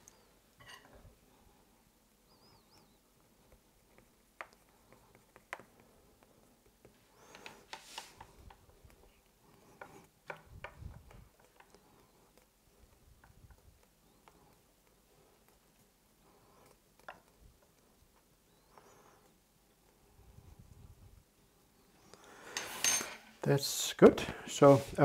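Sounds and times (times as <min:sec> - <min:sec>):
small clicks and taps: 0:03.4 - 0:15.9, 0:16.5 - 0:18.9.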